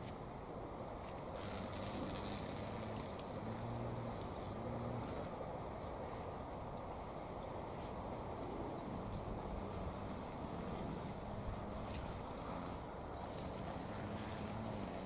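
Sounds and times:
small bird chirping: 0:07.8 - 0:15.0.

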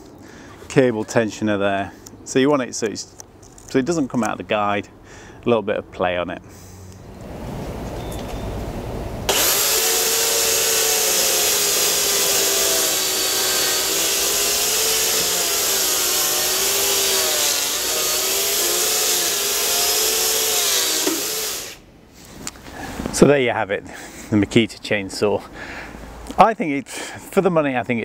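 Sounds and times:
electric chainsaw cutting wood: 0:09.3 - 0:21.8.

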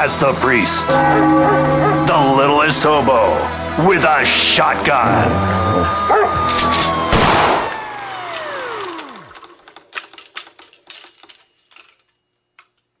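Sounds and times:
tone sliding down in pitch: 0:00.9 - 0:03.2
sharp clicks and rattles: 0:07.7 - 0:12.9.

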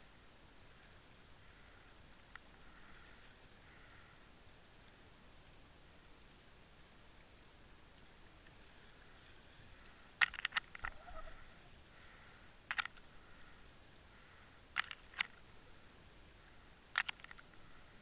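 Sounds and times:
sharp underwater clicks: 0:10.2 - 0:11.2, 0:12.7 - 0:13.1, 0:14.8 - 0:15.4, 0:16.9 - 0:17.6.

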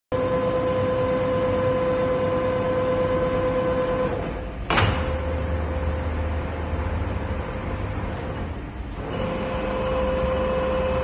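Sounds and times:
low machine hum: 0:00.1 - 0:11.0
lathe whining tone: 0:00.2 - 0:04.4, 0:07.2 - 0:11.0
machine clunk: 0:04.1 - 0:05.6.

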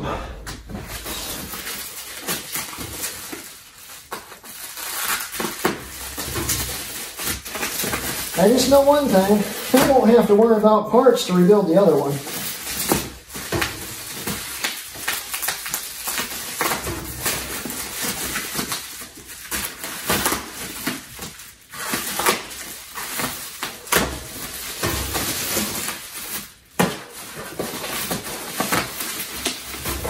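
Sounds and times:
plastic wrap rustling: 0:00.6 - 0:30.0
knife scraping packing tape: 0:01.0 - 0:08.8, 0:12.4 - 0:30.0.

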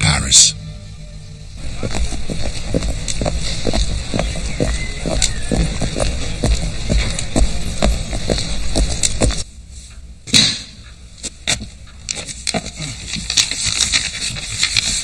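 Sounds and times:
scattered taps: 0:01.7 - 0:09.4
paper sheet rustling: 0:12.1 - 0:15.0.

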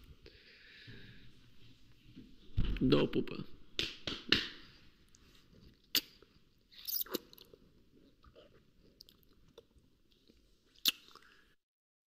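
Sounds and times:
wet kissing lip smacks: 0:05.9 - 0:07.4, 0:10.8 - 0:11.2.

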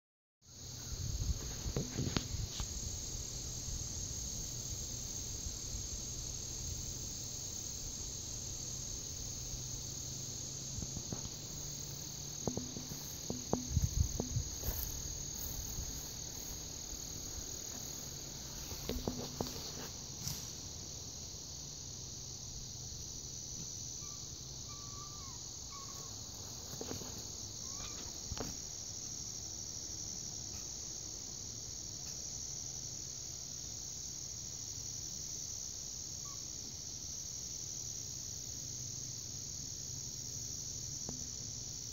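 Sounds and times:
insects chorus: 0:00.4 - 0:41.9
rustling in leafy undergrowth: 0:10.7 - 0:21.3.

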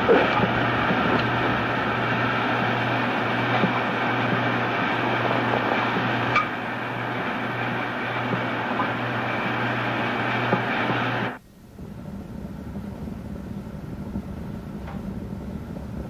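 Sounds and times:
film soundtrack hiss and hum: 0:00.0 - 0:16.0
faint low rumble: 0:11.4 - 0:16.0.

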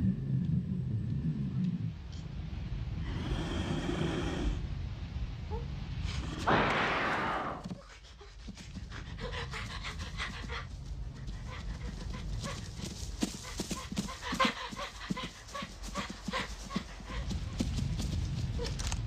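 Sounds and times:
animal panting: 0:07.6 - 0:18.8.

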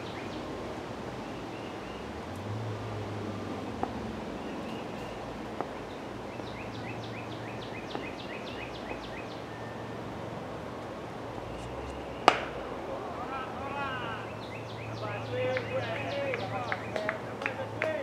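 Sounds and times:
bird chirping: 0:00.0 - 0:02.3, 0:03.3 - 0:18.0
cricket bat hitting ball: 0:12.2 - 0:12.6.

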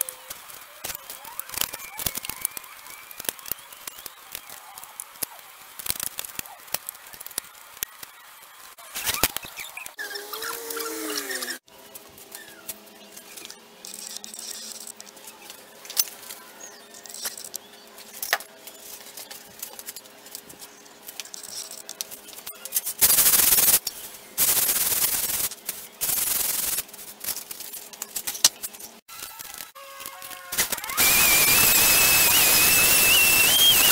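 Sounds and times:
sandpaper rubbing: 0:22.7 - 0:23.8, 0:24.4 - 0:27.7.

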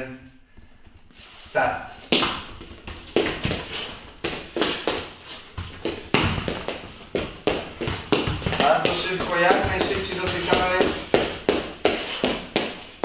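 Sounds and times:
footsteps on hard floor: 0:02.0 - 0:13.0
football tapped between feet: 0:04.2 - 0:12.8.

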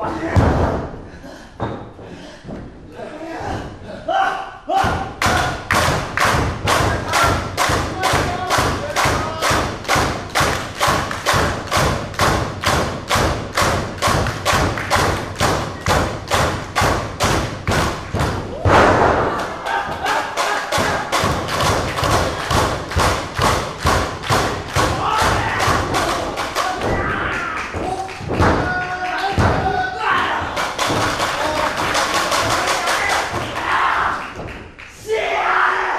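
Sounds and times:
audience clapping in unison: 0:05.3 - 0:12.8, 0:13.4 - 0:16.8, 0:19.4 - 0:25.0, 0:25.6 - 0:29.5, 0:30.6 - 0:35.0.

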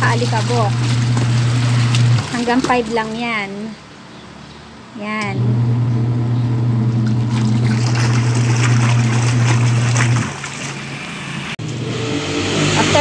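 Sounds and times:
washing machine motor hum: 0:00.0 - 0:03.5, 0:05.2 - 0:13.0
water churning and sloshing: 0:00.0 - 0:03.8, 0:06.9 - 0:11.6.

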